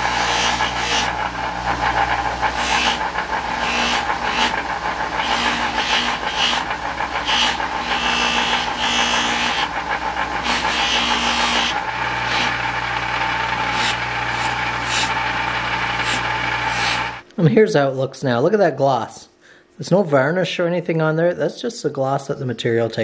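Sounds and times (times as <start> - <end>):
buffer motor hum: 0.0 - 17.2.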